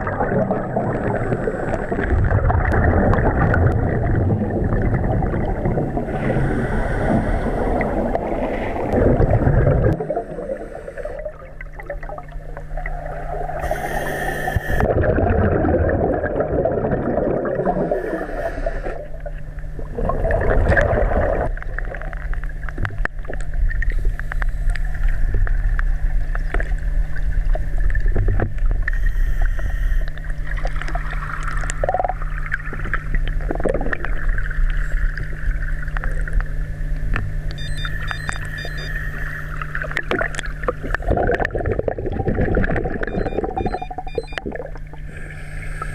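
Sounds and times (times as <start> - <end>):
regulator bubbles underwater: 0.0 - 45.9
steady low hum: 0.0 - 45.9
high hiss of inhalation: 6.3 - 7.8, 13.6 - 14.8, 17.9 - 19.0.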